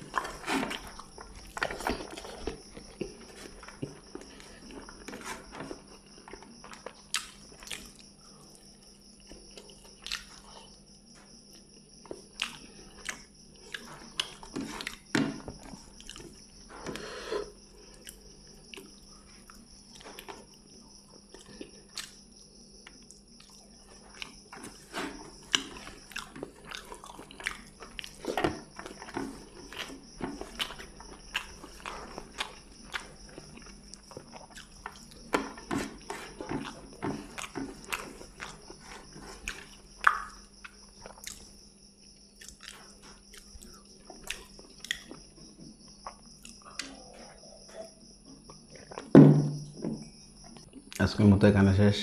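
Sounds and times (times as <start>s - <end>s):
chewing: 0.0s - 8.6s, 9.2s - 10.8s, 11.5s - 41.6s, 42.2s - 49.1s
person chewing wet mouth smacks: 10.0s - 10.3s.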